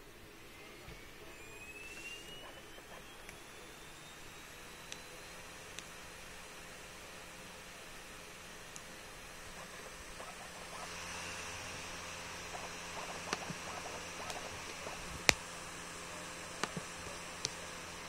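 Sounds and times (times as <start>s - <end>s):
steady hiss: 0.0s - 18.0s
sharp clicks: 12.5s - 15.5s.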